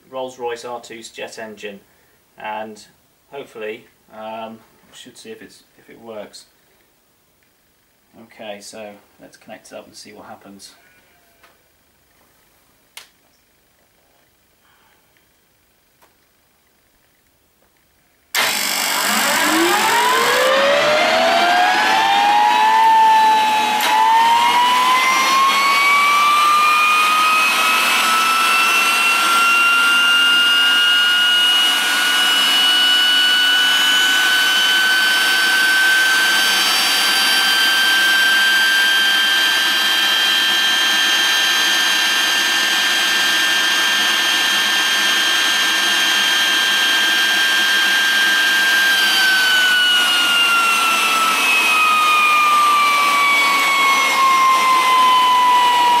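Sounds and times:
gas turbine starter whine: 18.3s - 56.0s.

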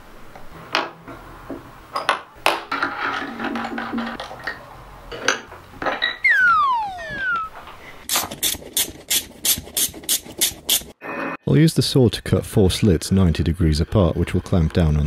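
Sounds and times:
falling whistle tone: 6.2s - 7.7s.

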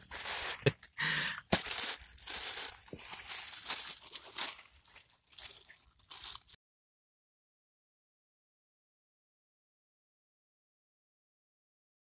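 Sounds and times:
rustling and crackling: 0.0s - 6.6s.

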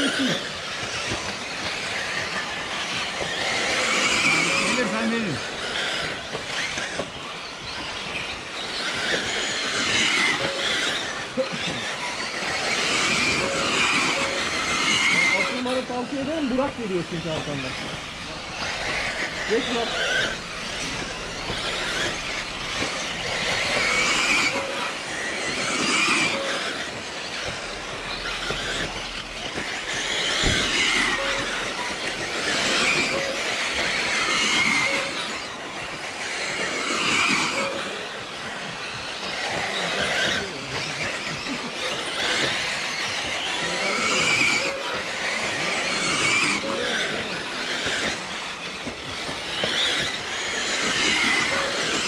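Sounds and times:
electric toy car motors whining: 0.0s - 52.0s
tyres scrabbling: 0.0s - 52.0s.

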